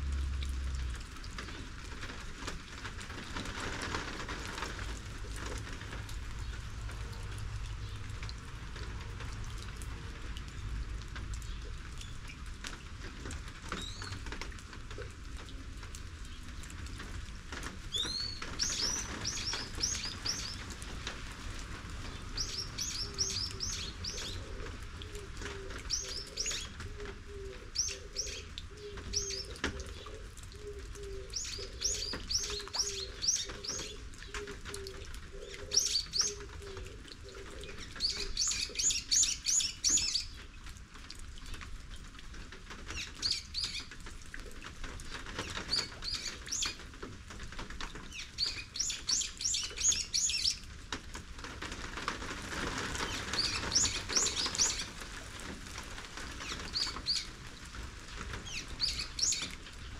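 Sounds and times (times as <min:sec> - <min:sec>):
rain hiss: 0:00.0 - 0:59.9
songbirds chirping: 0:00.1 - 0:40.6, 0:42.8 - 0:50.8, 0:51.6 - 0:59.9.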